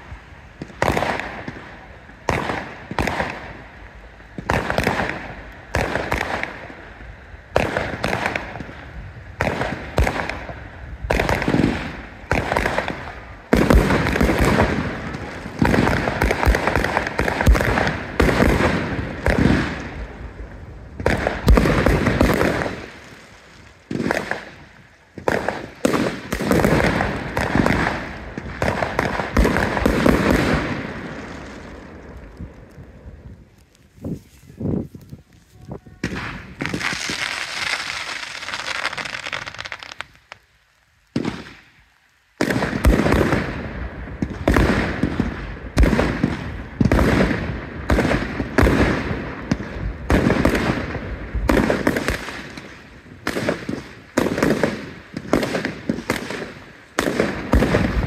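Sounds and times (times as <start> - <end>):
fireworks bangs and crackles: 0.0 - 58.0.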